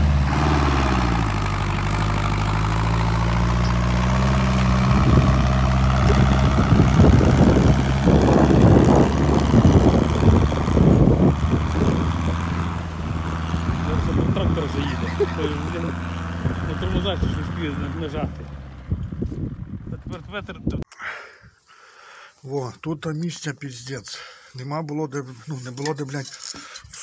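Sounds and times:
tractor engine running: 0:00.0 - 0:20.8.

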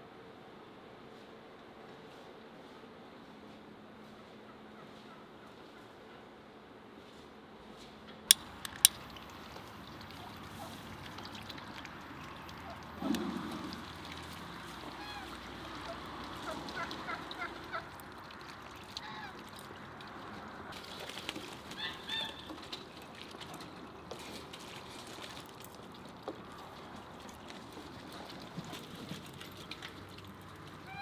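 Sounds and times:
farmyard birds calling: 0:12.2 - 0:20.7, 0:21.6 - 0:24.1, 0:30.8 - 0:31.0.

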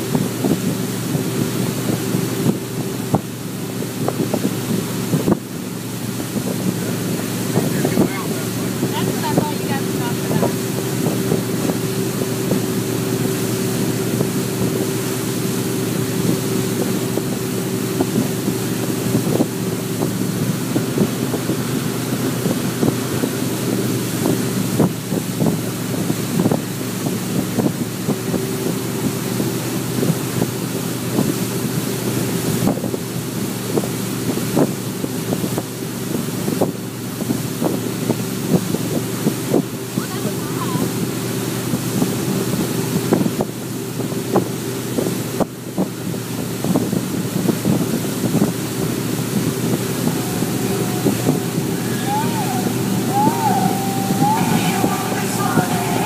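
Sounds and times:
water rushing: 0:00.0 - 0:28.0, 0:47.7 - 0:56.0
boat engine droning: 0:00.0 - 0:31.3, 0:46.7 - 0:56.0
wind buffeting microphone: 0:00.0 - 0:56.0.

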